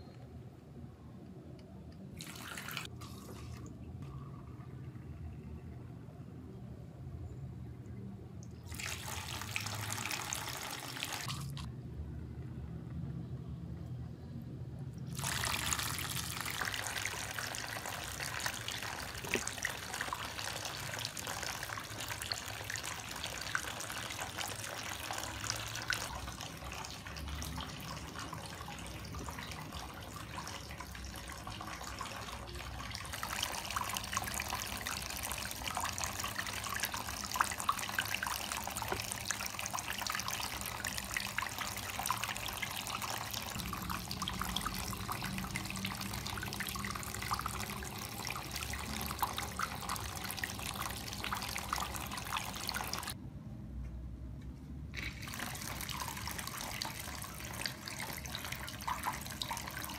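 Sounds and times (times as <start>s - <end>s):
water streams splashing into basin: 8.7s - 11.7s, 15.1s - 53.2s, 55.0s - 59.9s.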